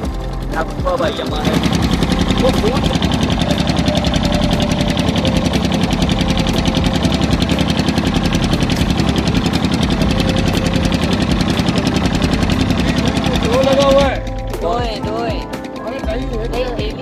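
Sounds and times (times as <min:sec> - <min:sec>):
boat engine chugging: 0:00.0 - 0:17.0.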